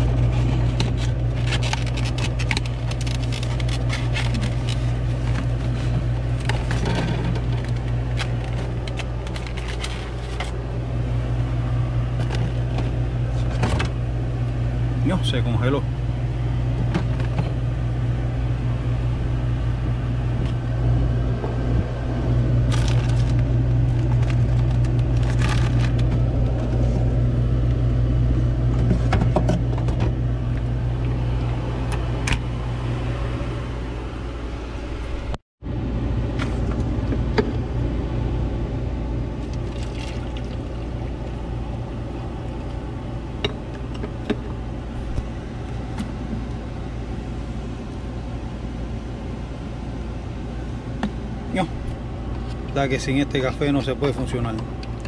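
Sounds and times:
boat machinery drone: 0.0 - 55.0
clinks and knocks in refrigerator: 28.8 - 30.2.

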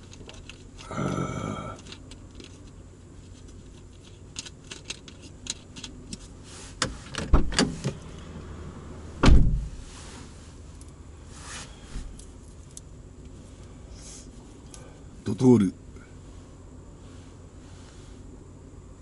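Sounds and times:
objects clicking and knocking in car: 0.0 - 8.2
heavy deep thud: 9.2 - 9.8.

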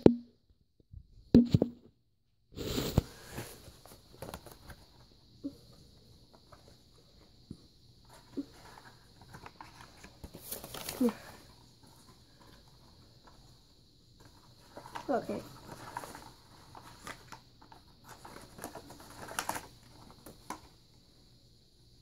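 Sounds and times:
cardboard box and cards rustling: 2.8 - 5.1, 8.0 - 13.5, 14.2 - 20.8.

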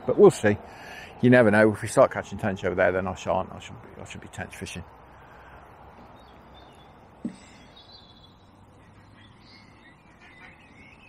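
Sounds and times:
faint bird calls: 5.1 - 11.0.

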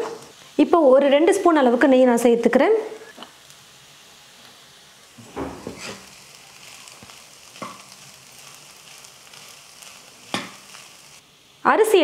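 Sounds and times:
faint sizzle: 0.0 - 12.0
spoon scraping pan: 5.2 - 6.2.

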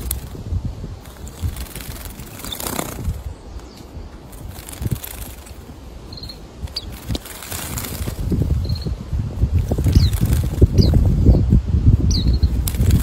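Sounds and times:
high bird chirp: 2.3 - 4.3, 6.0 - 7.2, 8.6 - 9.0, 9.8 - 12.6.

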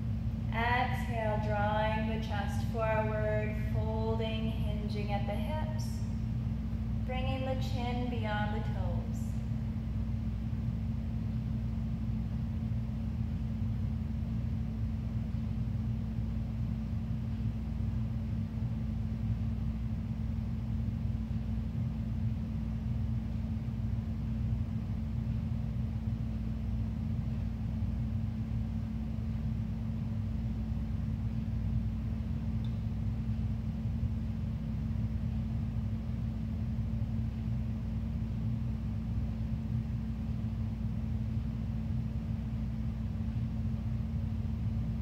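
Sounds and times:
low rumble: 0.0 - 20.1.

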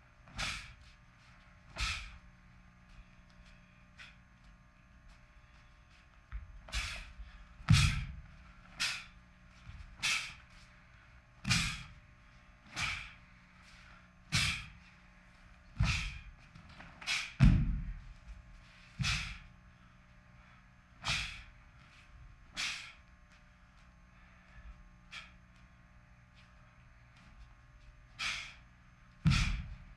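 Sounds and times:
bare feet thudding on floor: 7.7 - 8.4, 15.8 - 19.4, 29.2 - 29.9.

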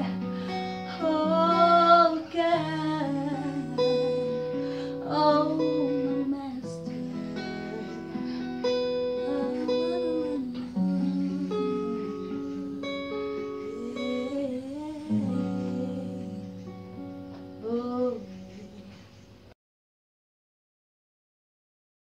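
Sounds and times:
woman singing gospel: 0.0 - 8.5, 9.1 - 16.6, 17.6 - 19.0
strummed acoustic guitar: 0.0 - 19.5.

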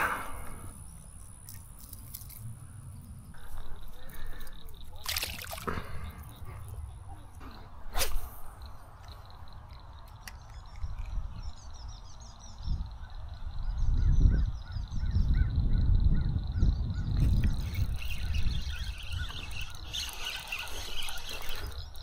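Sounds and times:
birds calling repeated notes: 16.6 - 22.0.

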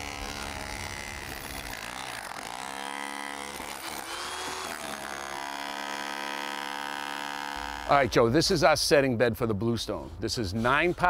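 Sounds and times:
rotary hammer chipping concrete: 0.0 - 8.1.

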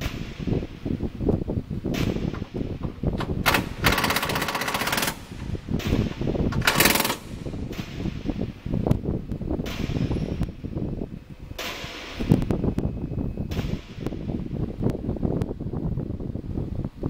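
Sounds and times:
busy low rumble: 0.0 - 17.0
pneumatic impact wrench hammering: 2.0 - 8.2.

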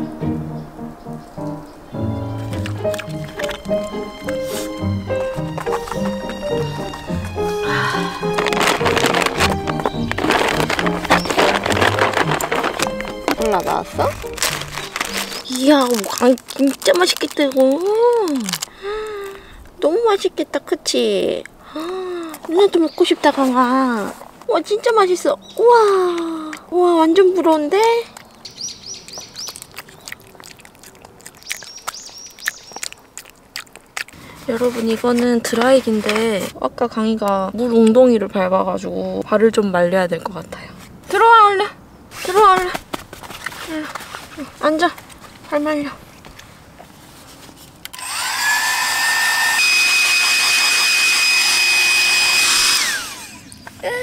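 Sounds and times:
songbird chirping: 0.0 - 16.3, 21.1 - 36.1
hair dryer motor whining: 47.9 - 53.5.

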